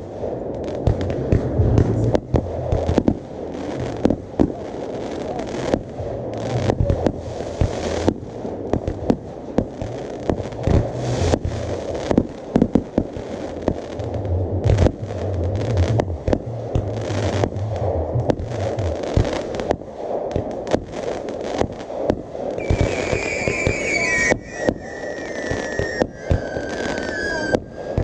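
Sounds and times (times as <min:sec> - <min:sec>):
rumble and crackle of fireworks: 0:00.0 - 0:28.0
firework shells bursting: 0:18.3 - 0:28.0.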